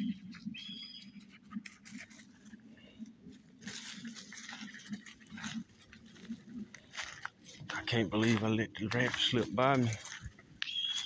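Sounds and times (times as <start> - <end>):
footsteps crunching dry leaves: 3.3 - 11.0.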